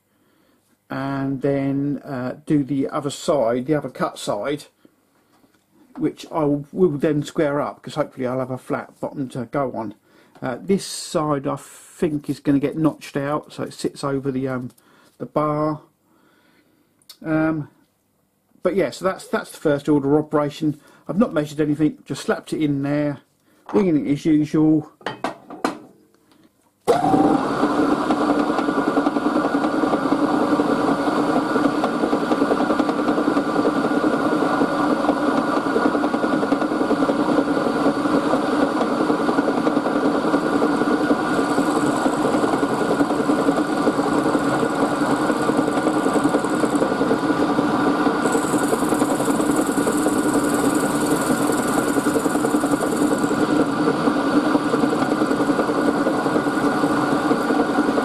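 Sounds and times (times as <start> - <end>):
milling machine running: 26.9 - 58.0
cutter hissing on brass: 48.2 - 53.4.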